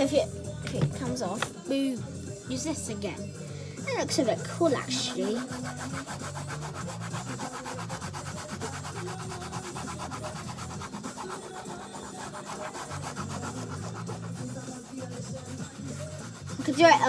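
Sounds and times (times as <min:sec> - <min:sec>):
pencil scribbling on paper: 0:04.0 - 0:17.0.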